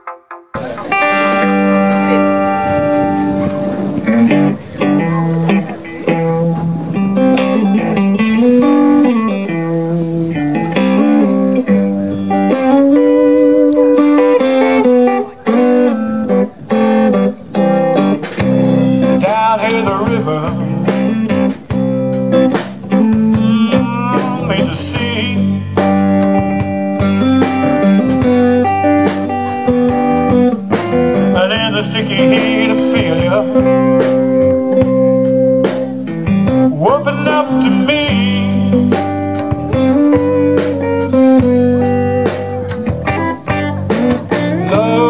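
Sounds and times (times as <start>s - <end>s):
bass guitar: 0.0s - 45.0s
drum kit: 0.0s - 45.0s
electric guitar: 0.0s - 45.0s
person singing: 19.0s - 21.5s, 23.0s - 26.0s, 31.1s - 34.8s, 35.6s - 39.2s, 44.3s - 45.0s.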